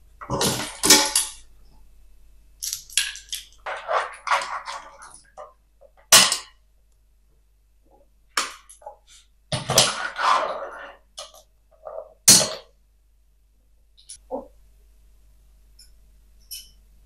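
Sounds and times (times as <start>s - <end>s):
pasta server scraping pan: 3.6s - 5.4s, 9.1s - 12.2s.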